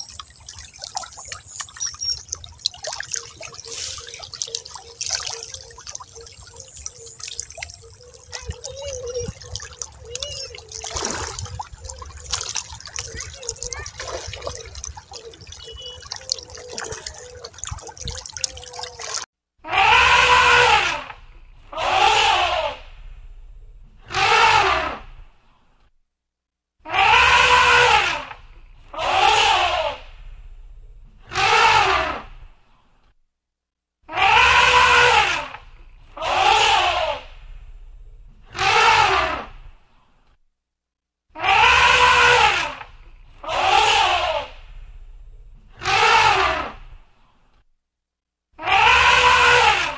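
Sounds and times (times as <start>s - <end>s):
bubbling: 0.0s - 19.3s
low rumble: 22.8s - 24.1s, 30.0s - 31.2s, 37.3s - 38.5s, 44.6s - 45.7s
elephant trumpeting: 38.6s - 39.5s, 41.4s - 42.7s, 48.6s - 49.9s.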